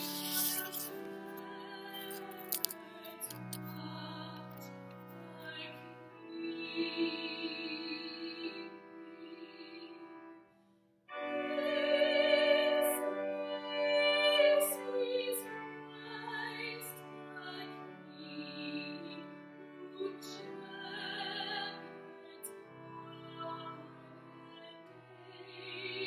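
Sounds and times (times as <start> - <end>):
church organ chords: 11.1 - 26.0.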